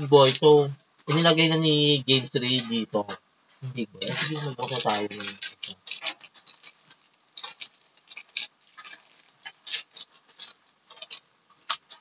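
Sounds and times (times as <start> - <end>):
plastic wrapper crinkling: 4.0 - 12.0.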